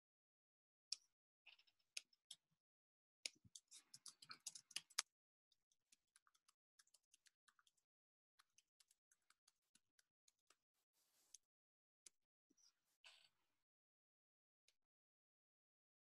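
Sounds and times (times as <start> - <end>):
faint keyboard typing: 3.3 - 10.6.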